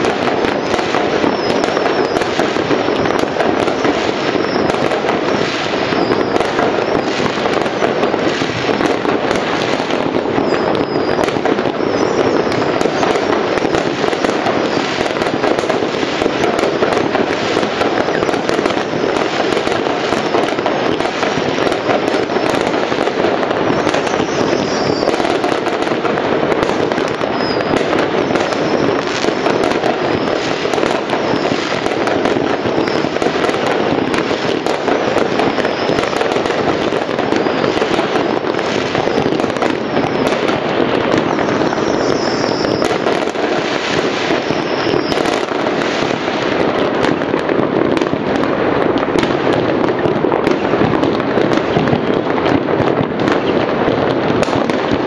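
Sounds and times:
firework whistle: 0:00.0 - 0:53.8
fireworks crackling and popping: 0:00.0 - 0:55.0.

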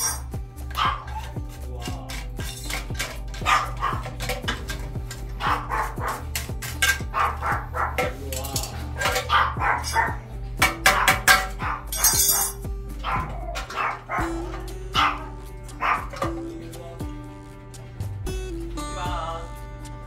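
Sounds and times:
dog barking: 0:00.0 - 0:01.3, 0:03.4 - 0:04.3, 0:05.4 - 0:06.4, 0:07.0 - 0:08.2, 0:09.0 - 0:10.2, 0:10.8 - 0:16.2
background music: 0:00.0 - 0:20.0.

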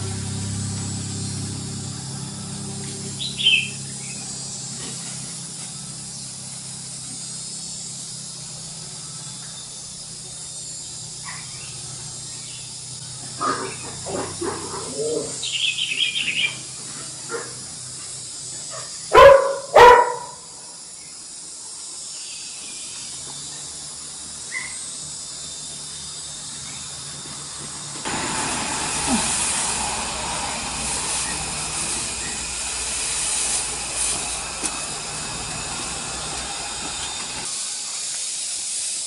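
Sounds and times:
high animal chirp: 0:03.1 - 0:04.5, 0:10.8 - 0:16.7
animal calls: 0:13.3 - 0:16.6.

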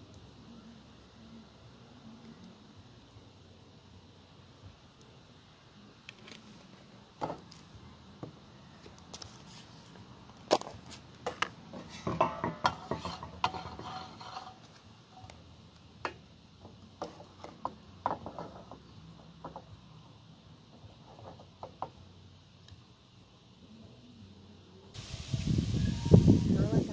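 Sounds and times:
items set down on wooden table: 0:07.2 - 0:07.5
wooden spatula moving in pan: 0:10.9 - 0:15.3.

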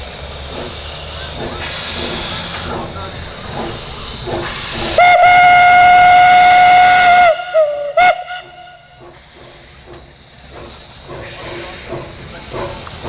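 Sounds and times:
steam hissing: 0:00.0 - 0:13.0
steam locomotive whistle: 0:05.0 - 0:09.0.

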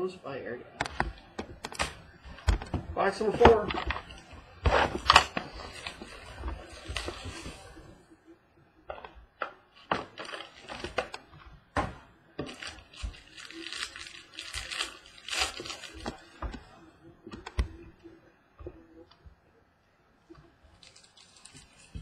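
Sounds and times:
cardboard and plastic wrapper crinkling: 0:01.5 - 0:08.0, 0:09.0 - 0:11.3, 0:12.4 - 0:16.8, 0:20.7 - 0:22.0.

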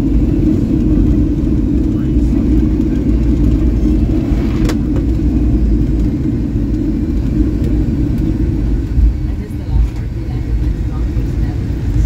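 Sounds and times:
aircraft rolling on runway rumble: 0:00.0 - 0:12.0
click in aircraft cabin: 0:04.6 - 0:05.1.

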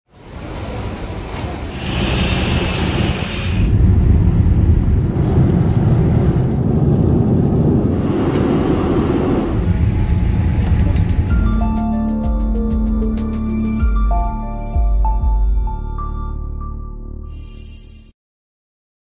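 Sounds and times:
jet engines rumbling: 0:00.2 - 0:12.8
high hiss: 0:01.7 - 0:03.7.

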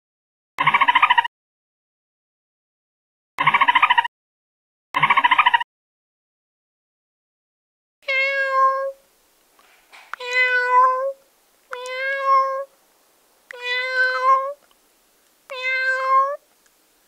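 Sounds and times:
cat meowing: 0:08.0 - 0:09.0, 0:10.2 - 0:12.7, 0:13.5 - 0:14.6, 0:15.5 - 0:16.4.

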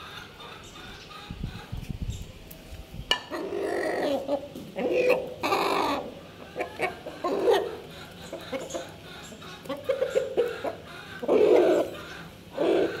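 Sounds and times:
fowl clucking: 0:03.1 - 0:13.0.

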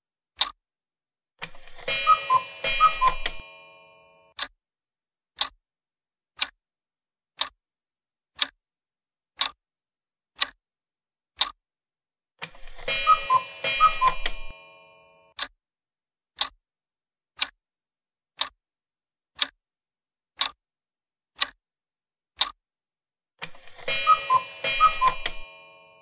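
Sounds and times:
clock ticking: 0:00.4 - 0:00.6, 0:01.4 - 0:04.6, 0:05.4 - 0:05.6, 0:06.4 - 0:06.6, 0:07.4 - 0:07.6, 0:08.4 - 0:08.6, 0:09.4 - 0:09.6, 0:10.4 - 0:10.6, 0:11.4 - 0:11.6, 0:12.4 - 0:15.6, 0:16.4 - 0:16.6, 0:17.4 - 0:17.6, 0:18.4 - 0:18.6, 0:19.4 - 0:19.6, 0:20.4 - 0:20.6, 0:21.4 - 0:21.6, 0:22.4 - 0:22.6, 0:23.4 - 0:26.0.

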